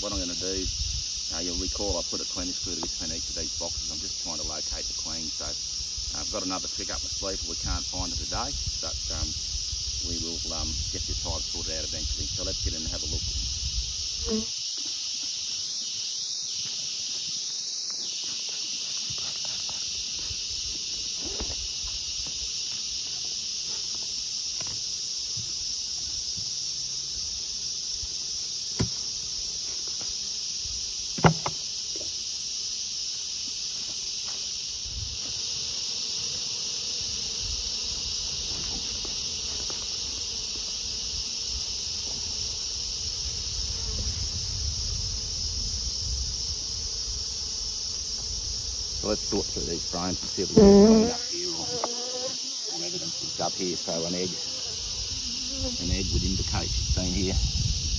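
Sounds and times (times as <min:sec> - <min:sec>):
insects droning: 0:00.0 - 0:57.9
beehive lid knocks: 0:28.7 - 0:29.1, 0:31.2 - 0:32.1.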